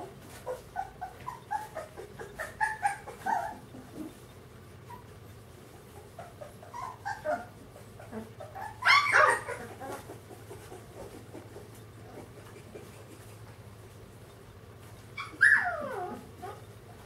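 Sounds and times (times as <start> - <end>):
puppies yipping and whimpering: 0.3 - 13.5, 14.9 - 17.0
puppy yelp: 0.4 - 4.1, 6.2 - 10.1, 15.2 - 16.7.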